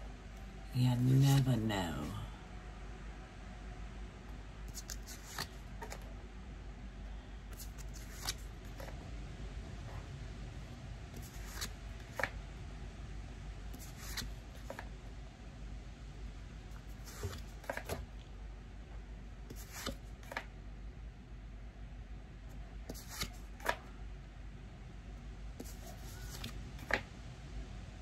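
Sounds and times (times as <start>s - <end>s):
cards snapping: 11.2s - 12.3s.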